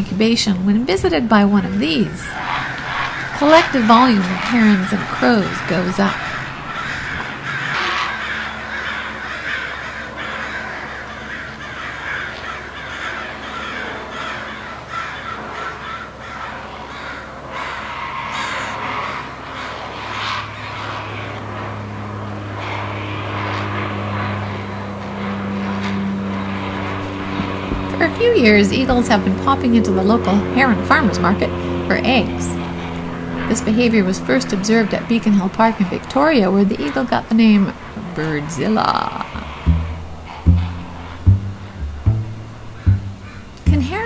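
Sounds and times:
low engine drone: 0.0 - 9.3, 19.4 - 44.0
herons calling: 0.1 - 44.0
crows cawing: 1.8 - 41.8, 42.6 - 43.6.

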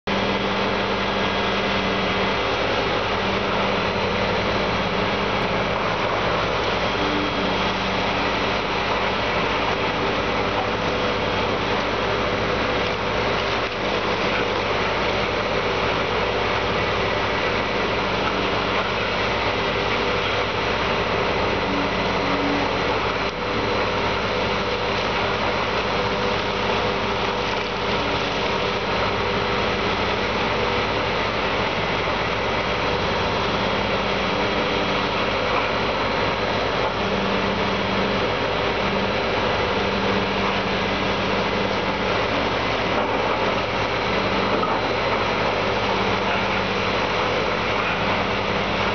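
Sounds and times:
excavator diesel engine: 0.0 - 48.9.

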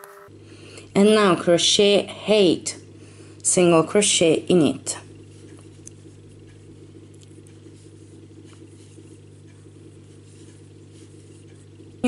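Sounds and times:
low hum: 0.0 - 12.0
fingers ticking on thread: 3.2 - 12.0
soft scratching of thread: 5.2 - 11.9.

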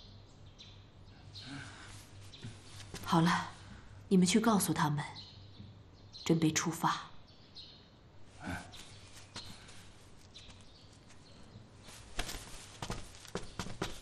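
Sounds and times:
light footsteps on floor: 1.9 - 3.6, 8.8 - 14.0.

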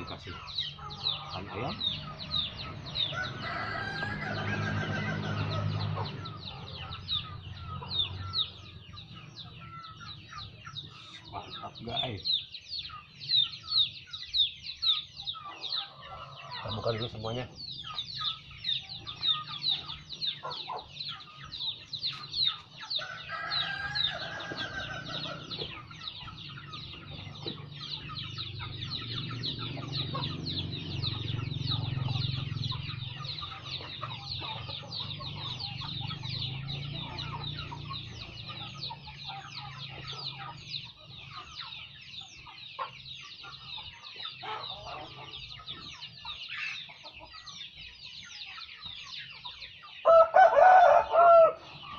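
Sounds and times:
chickens clucking: 0.0 - 51.9
chicks peeping: 0.0 - 51.9
rooster crowing: 2.9 - 6.5, 22.9 - 25.7, 50.0 - 51.7.

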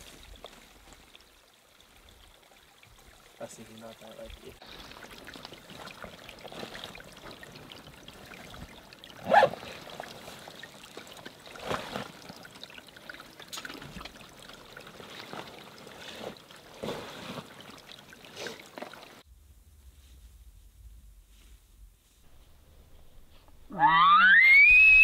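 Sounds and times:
water trickling over rocks: 0.0 - 19.3.

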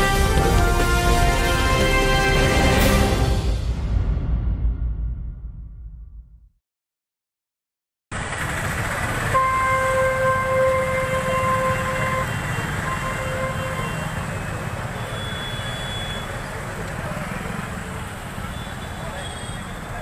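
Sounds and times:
horn blast: 0.0 - 4.0, 9.3 - 14.2
street noise with low rumble: 0.0 - 5.1, 8.1 - 20.0.

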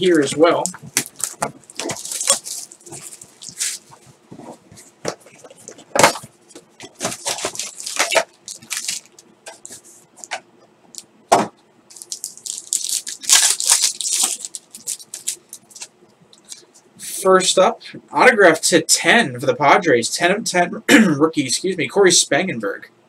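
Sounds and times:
plastic shrink wrap crinkling and tearing: 0.0 - 4.1, 6.8 - 9.8, 11.9 - 15.9
foil card pack rustling: 0.0 - 10.0, 11.9 - 15.9.

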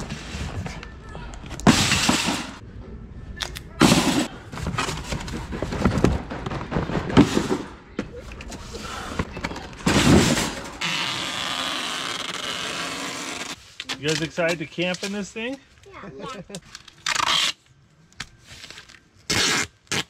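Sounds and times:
cardboard boxes thudding into cart: 9.8 - 10.8.

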